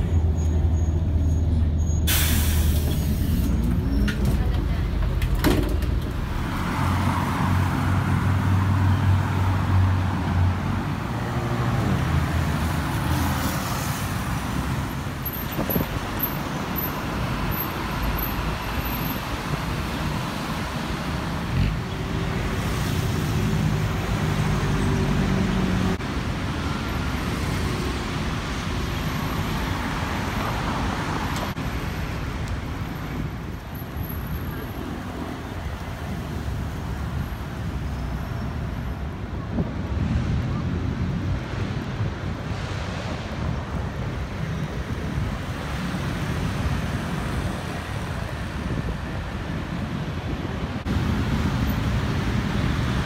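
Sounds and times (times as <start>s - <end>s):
passing cars and buses: 0.0s - 53.0s.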